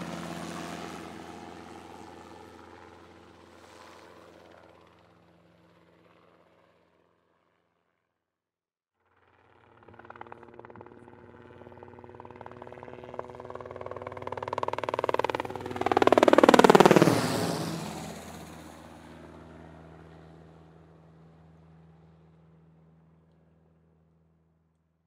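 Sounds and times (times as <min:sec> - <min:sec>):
hydroplane engine passing by: 0:00.0 - 0:03.5, 0:09.1 - 0:20.4.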